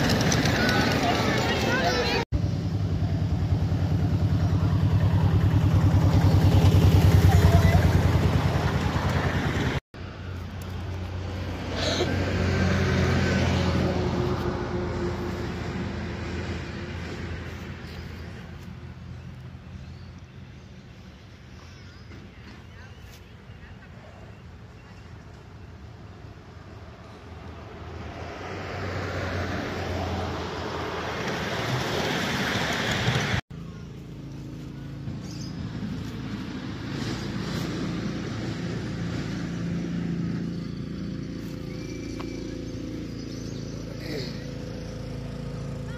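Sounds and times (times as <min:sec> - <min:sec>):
miniature train wheels on rails: 0:00.0 - 0:02.2
miniature locomotive engine hum: 0:00.0 - 0:12.0.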